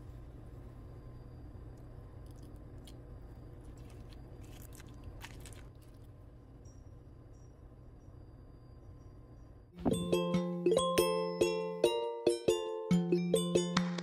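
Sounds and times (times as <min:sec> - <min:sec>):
low steady hum: 0:00.0 - 0:14.0
fried crust crunching: 0:03.7 - 0:06.1.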